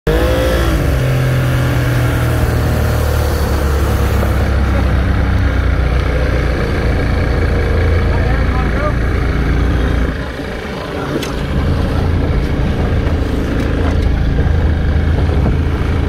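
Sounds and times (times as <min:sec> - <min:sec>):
outboard motor running: 0:00.1 - 0:16.0
wind and wake rushing: 0:10.3 - 0:16.0.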